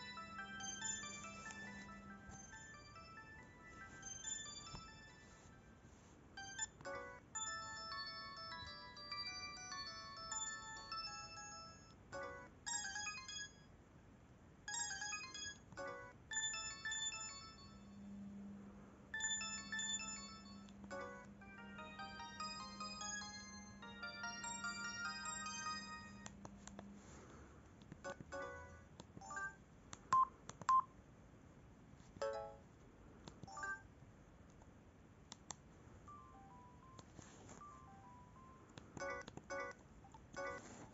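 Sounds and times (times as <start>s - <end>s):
mobile phone ringtone melodies: 0.0s - 13.7s, 14.7s - 18.0s, 19.2s - 26.4s, 32.2s - 32.6s, 33.5s - 33.8s, 36.1s - 39.8s, 40.4s - 40.9s
low steady hum: 0.0s - 40.9s.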